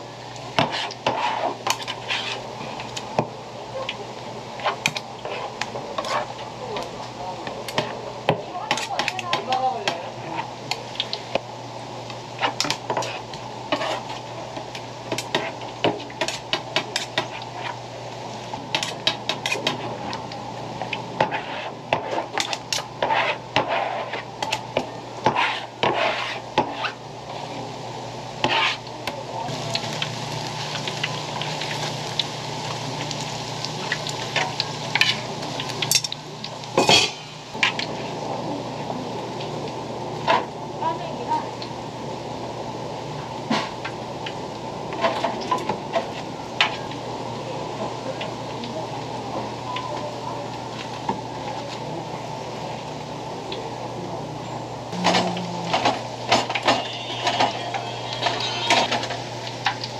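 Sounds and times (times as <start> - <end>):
food sizzling in deep-frying oil: 0.0 - 53.7, 54.9 - 59.9
knife scraping plastic cutting board: 25.3 - 27.0.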